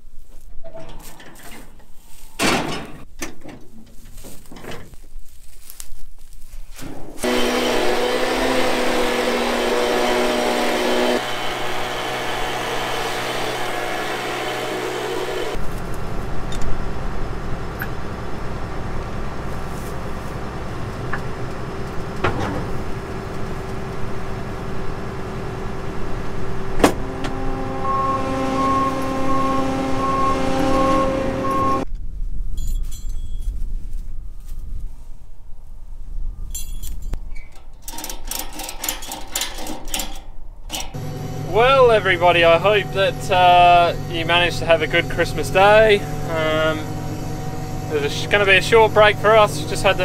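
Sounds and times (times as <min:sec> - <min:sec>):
engine hum: 0:06.9 - 0:31.9, 0:40.7 - 0:50.0.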